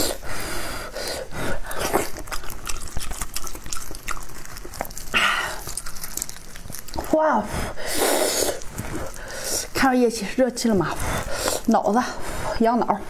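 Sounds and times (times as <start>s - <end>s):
wet tearing of meat and bone: 1.7s - 7.2s, 8.2s - 9.8s.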